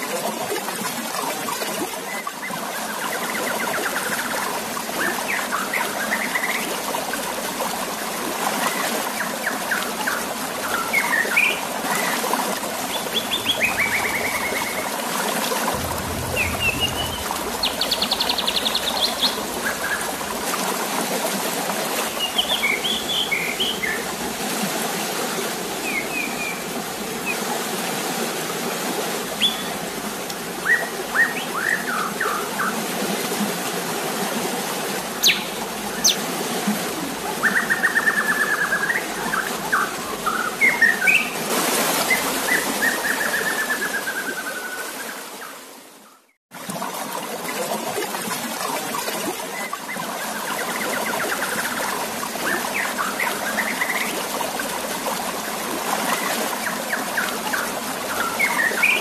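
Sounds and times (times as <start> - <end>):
flowing water: 0.0 - 59.0
bird chirps: 35.2 - 36.2.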